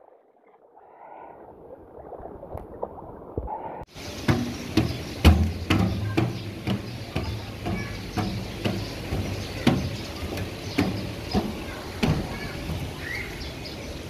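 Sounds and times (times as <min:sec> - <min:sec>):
footsteps on metal stairs: 0:04.0 - 0:13.3.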